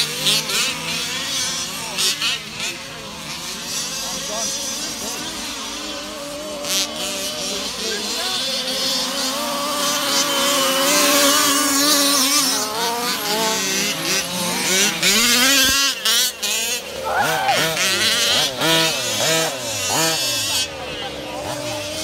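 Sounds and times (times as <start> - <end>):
small two-stroke engines revving: 0.0 - 22.0.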